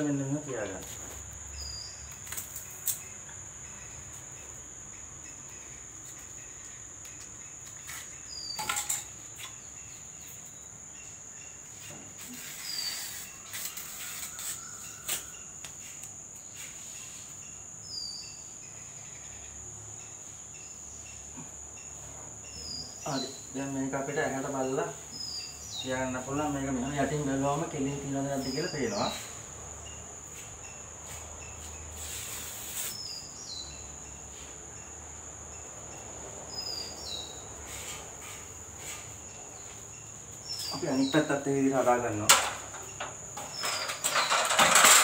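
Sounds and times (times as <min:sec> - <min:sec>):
insects droning: 0:00.0 - 0:45.0
short insect chirp: 0:00.0 - 0:45.0
taps and rustles at door frame: 0:42.2 - 0:45.0.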